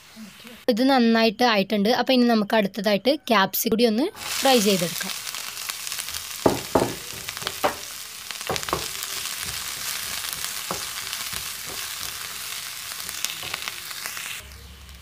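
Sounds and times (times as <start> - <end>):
vegetables sizzling in frying pan: 4.2 - 15.0.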